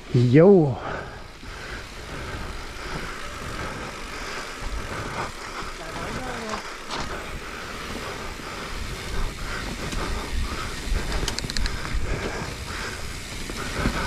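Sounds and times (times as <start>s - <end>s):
bike rattling: 0.0s - 14.0s
bike tyres rolling over dirt: 0.0s - 14.0s
wind rumbling on microphone: 0.9s - 14.0s
quick run of clicks: 8.5s - 14.0s.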